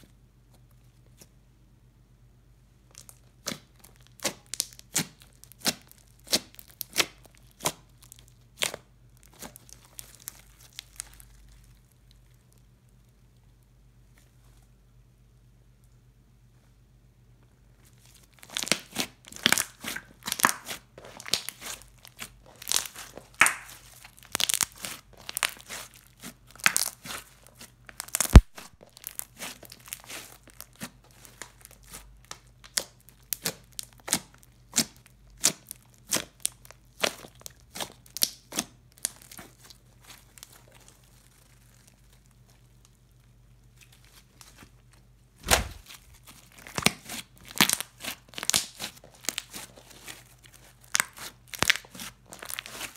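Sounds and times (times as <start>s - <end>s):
slime popping and crackling: 2.9s - 12.5s, 18.2s - 43.0s, 45.4s - 52.9s
loud slime snap: 28.2s - 28.7s, 45.4s - 46.0s.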